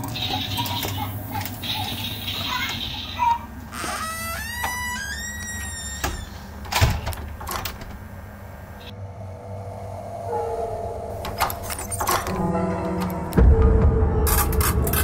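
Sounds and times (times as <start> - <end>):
door hinge squealing: 2.5 - 7.6, 11.2 - 12.6.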